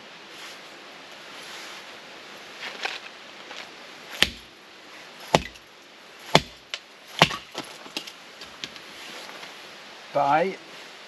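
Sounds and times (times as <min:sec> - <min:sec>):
axe chopping into log: 0:04.2 - 0:04.5, 0:05.3 - 0:05.6, 0:06.3 - 0:08.8.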